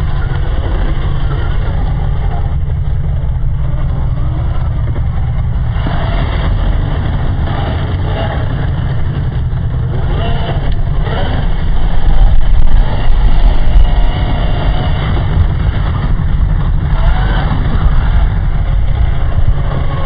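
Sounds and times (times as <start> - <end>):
steady low rumble: 0.0 - 20.0
rc car motor whine: 9.9 - 16.0, 16.8 - 20.0.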